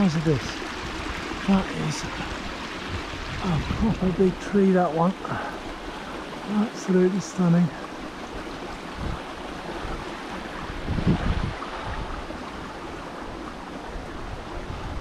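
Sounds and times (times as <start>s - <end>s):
wind buffeting microphone: 0.0s - 4.4s, 8.3s - 15.0s
stream rushing: 0.0s - 15.0s.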